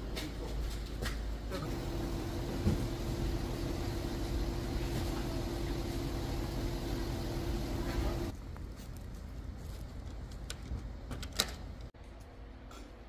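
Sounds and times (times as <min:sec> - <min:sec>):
engine running steadily: 0:01.6 - 0:08.4.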